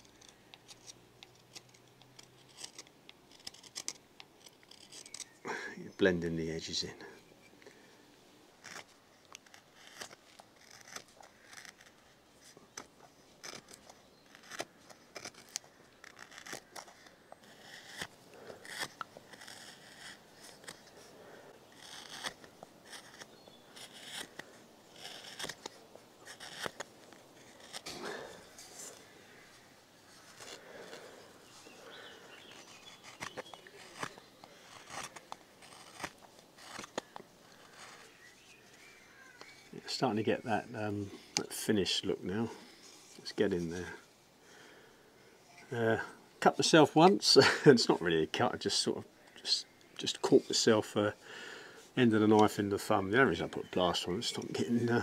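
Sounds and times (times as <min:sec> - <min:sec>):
knife cutting and scraping wood: 0:00.0 - 0:05.4, 0:08.6 - 0:44.0, 0:52.0 - 0:55.0.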